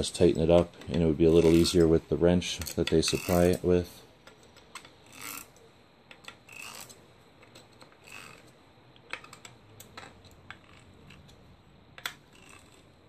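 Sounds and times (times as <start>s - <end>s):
metal tool scraping metal: 0.8s - 3.9s, 5.0s - 5.6s, 6.4s - 7.0s, 8.0s - 8.5s
hex wrench clicks: 2.6s - 3.6s, 4.2s - 11.4s, 12.0s - 12.9s.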